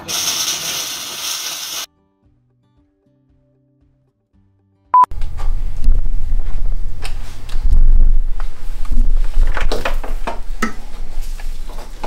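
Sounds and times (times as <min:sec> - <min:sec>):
steady low rumble: 0:05.2 - 0:09.5.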